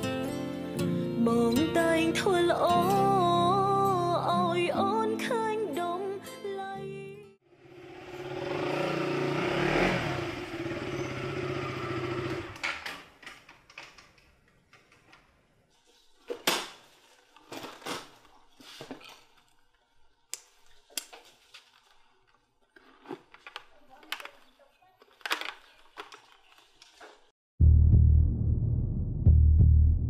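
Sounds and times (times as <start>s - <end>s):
motorcycle engine running: 7.6s - 12.6s.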